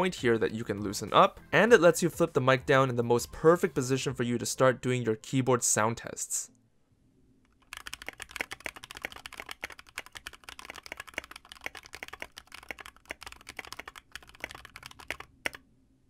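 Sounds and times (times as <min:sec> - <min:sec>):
fast mechanical keyboard typing: 0:07.6 - 0:15.6.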